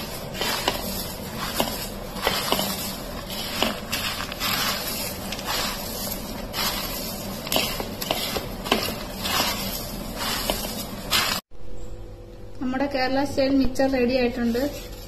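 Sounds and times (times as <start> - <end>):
dry crunchy rustle of snacks: 0.0 - 11.4.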